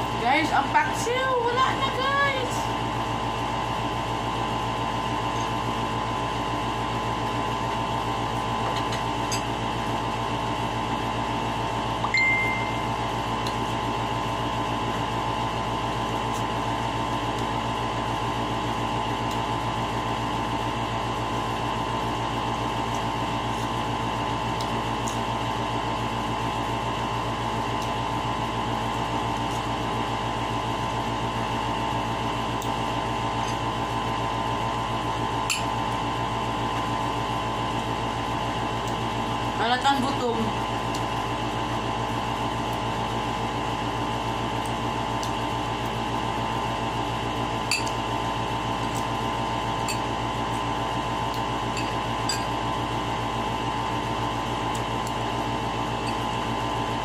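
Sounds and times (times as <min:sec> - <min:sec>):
machine hum: 0:00.0 - 0:57.0
short high beep: 0:12.1 - 0:12.9.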